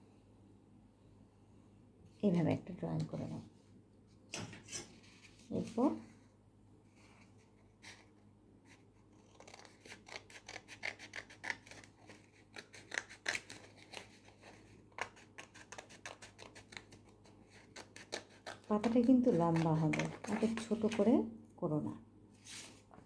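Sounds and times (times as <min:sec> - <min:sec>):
scissors snipping paper: 0:09.2 - 0:21.1.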